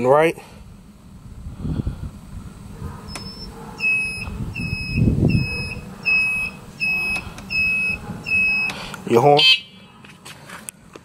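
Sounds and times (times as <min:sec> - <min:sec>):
turn-signal beeper: 0:03.1 - 0:08.7.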